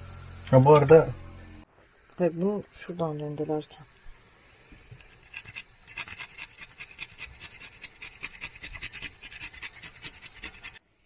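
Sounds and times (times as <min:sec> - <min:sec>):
garlic grated on metal grater: 0:05.2 - 0:10.8.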